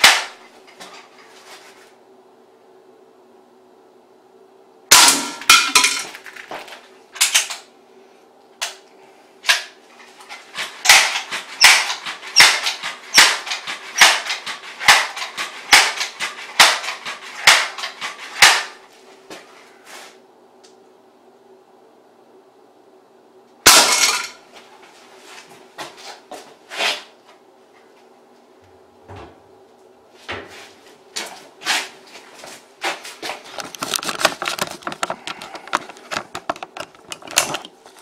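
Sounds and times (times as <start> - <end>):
pellet gun shots: 0.0 - 0.4, 10.8 - 18.8.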